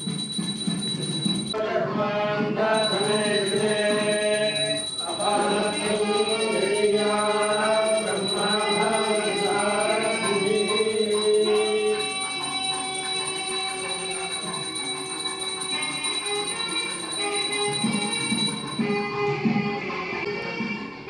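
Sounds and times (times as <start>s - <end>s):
voices singing a chant: 1.5s - 18.9s
thin high tone: 2.8s - 18.9s.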